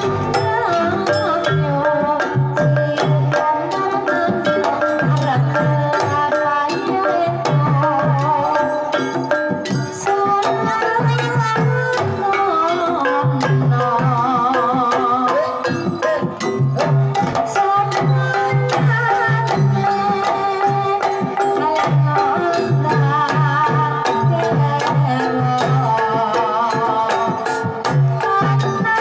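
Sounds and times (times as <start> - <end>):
struck metallophones and gongs: 0.0 - 29.0
woman singing: 0.0 - 29.0.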